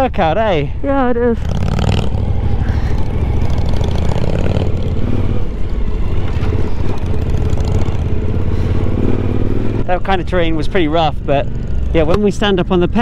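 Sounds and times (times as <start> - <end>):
motorcycle engine running: 0.0 - 13.0
road noise: 0.0 - 13.0.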